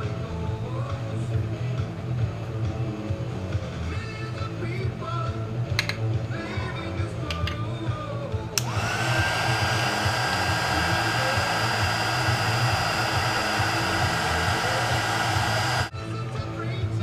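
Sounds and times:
heat gun fan whine: 8.6s - 15.9s.

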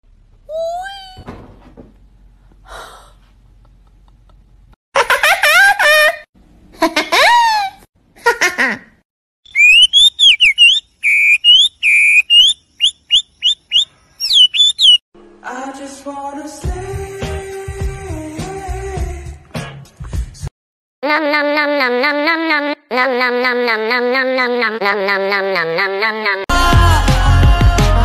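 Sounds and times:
finch singing whistled notes: 9.5s - 15.0s
squeaky bird cries: 9.5s - 15.0s.

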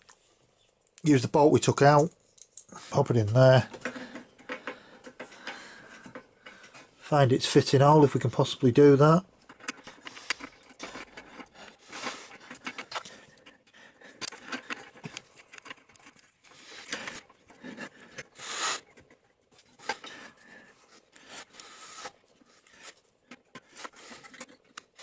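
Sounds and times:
metal clicks and scrapes: 9.4s - 25.0s.

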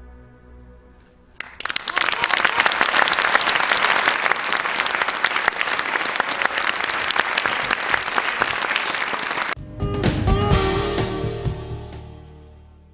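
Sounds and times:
audience applauding: 1.4s - 9.6s.

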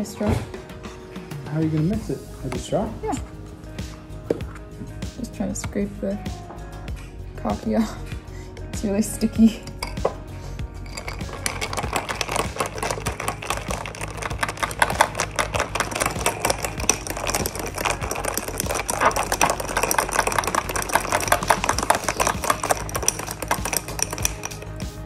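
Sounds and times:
spoon clicking against glass: 10.9s - 24.8s.

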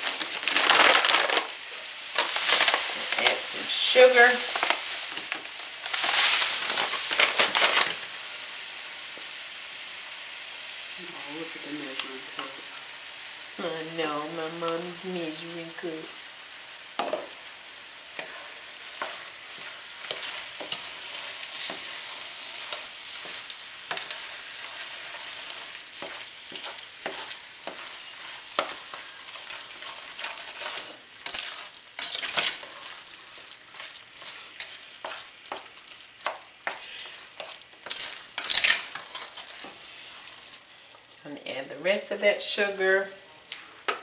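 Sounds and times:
steady hiss: 0.0s - 32.0s.

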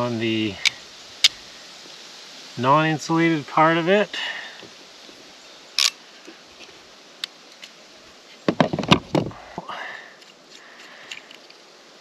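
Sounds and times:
tool set down clatter: 8.5s - 9.4s.

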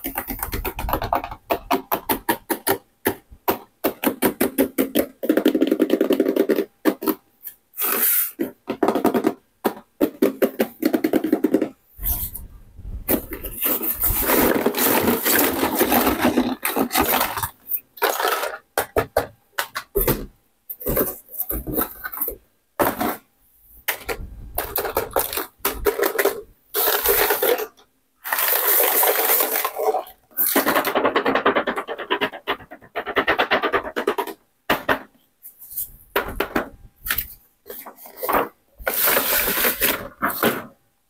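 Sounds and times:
plastic toys clattering: 13.1s - 23.3s, 23.9s - 40.8s.

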